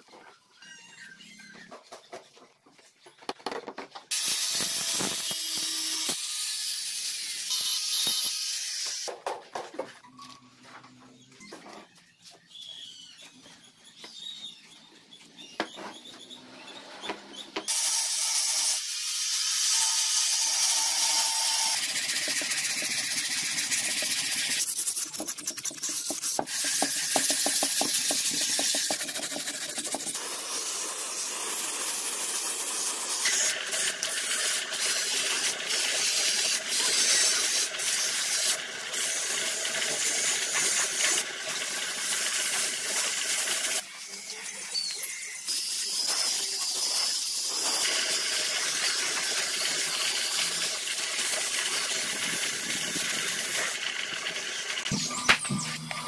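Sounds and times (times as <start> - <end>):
sandpaper rubbing on plastic: 21.8 - 30.2.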